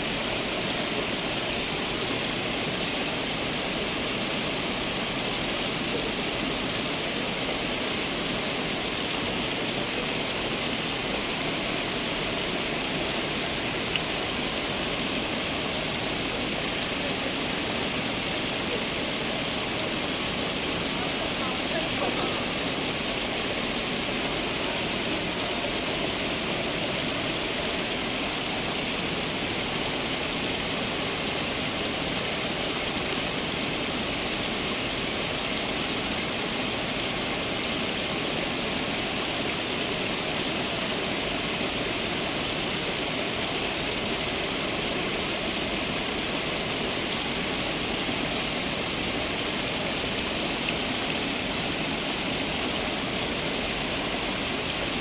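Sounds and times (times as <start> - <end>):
fountain water splashing: 0.0 - 55.0.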